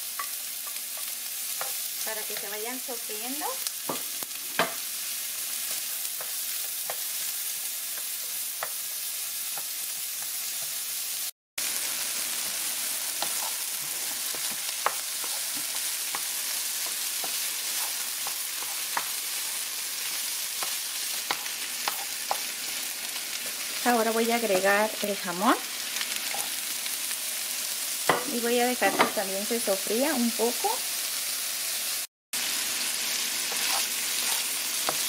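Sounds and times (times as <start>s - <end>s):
vegetables sizzling in oil: 0.0s - 35.0s.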